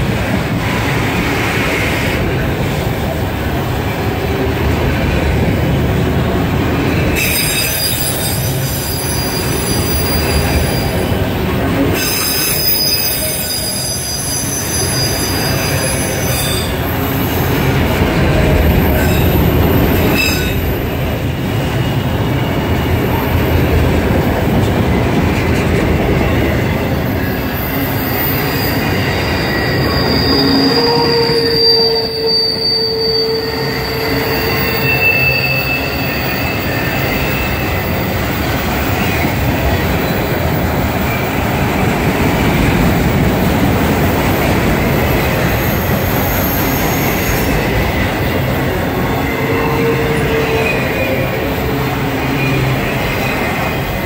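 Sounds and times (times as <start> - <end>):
freight cars rumbling on rails: 0.0 - 54.0
wheel squeal: 7.1 - 11.0, 12.0 - 17.3, 27.4 - 38.0, 45.1 - 48.4.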